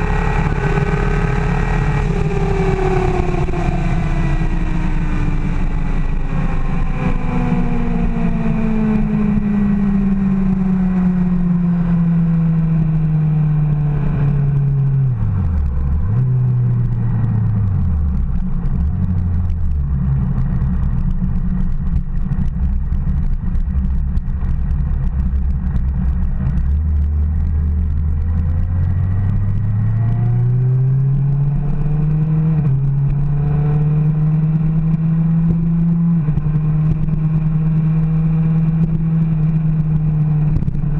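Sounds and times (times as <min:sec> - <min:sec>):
motorcycle engine revving: 0:00.0 - 0:14.8.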